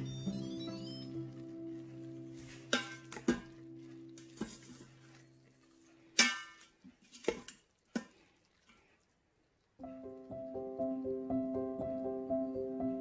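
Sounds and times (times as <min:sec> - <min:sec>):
soft background music: 0:00.0 - 0:06.2, 0:09.8 - 0:13.0
cutlery clinking against dishes: 0:02.6 - 0:03.6.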